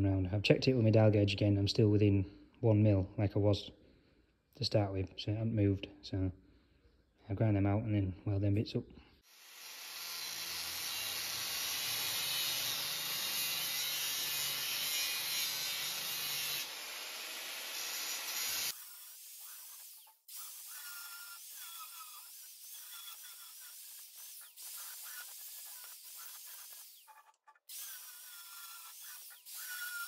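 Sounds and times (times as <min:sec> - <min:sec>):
angle grinder grinding steel: 0:09.4 - 0:30.0.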